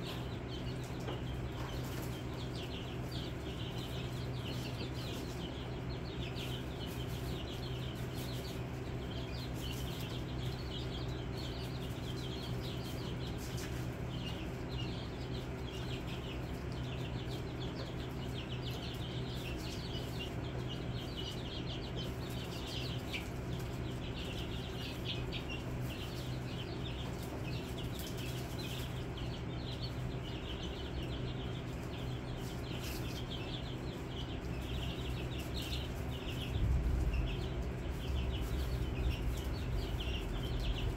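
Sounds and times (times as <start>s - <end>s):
chicks peeping: 0.0s - 40.9s
steady low hum: 0.0s - 40.9s.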